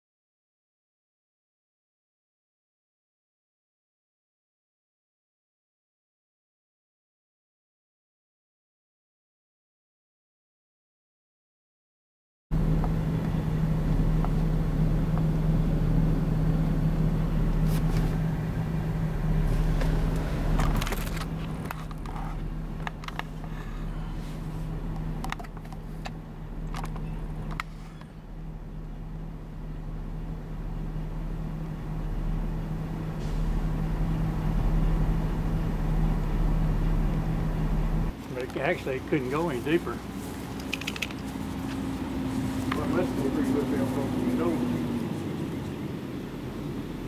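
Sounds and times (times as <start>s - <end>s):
vehicle engine idling: 12.5s - 47.0s.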